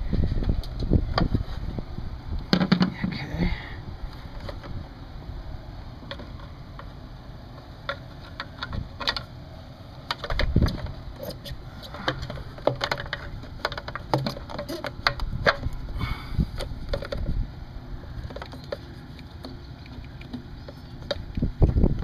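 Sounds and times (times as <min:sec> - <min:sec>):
clicks and rubbing of plastic tube: 0:10.1 - 0:15.8.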